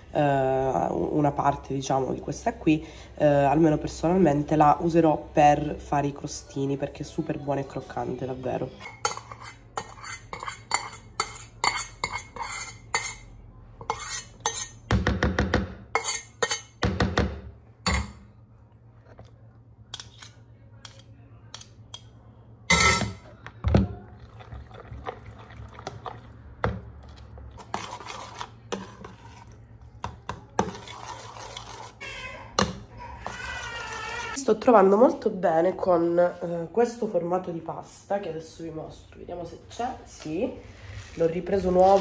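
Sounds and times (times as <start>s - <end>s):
spatula scraping saucepan: 8.8s - 14.9s, 15.9s - 16.8s, 19.9s - 22.0s, 27.1s - 34.4s.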